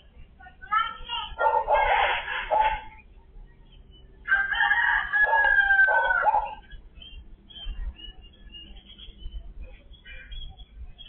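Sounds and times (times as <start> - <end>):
faint high bird chirps: 0.8 - 11.0
rooster crowing: 4.2 - 6.6.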